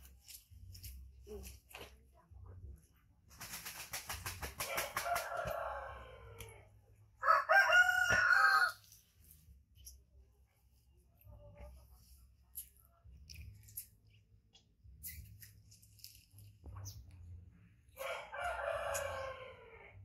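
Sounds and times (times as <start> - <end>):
rooster crowing: 4.8 - 6.4, 7.2 - 8.8, 18.0 - 19.9.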